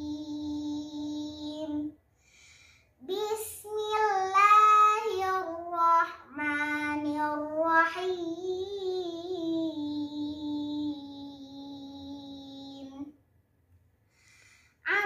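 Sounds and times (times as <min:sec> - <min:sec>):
girl chanting recitation: 0:00.0 - 0:02.0, 0:03.0 - 0:13.1.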